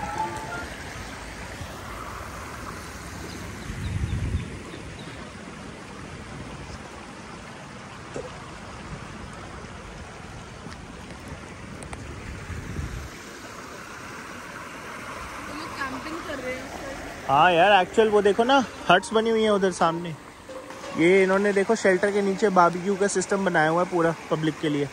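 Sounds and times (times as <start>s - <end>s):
wind rumble on microphone: 0.0s - 7.2s, 8.1s - 13.2s
river water rushing: 0.0s - 24.9s.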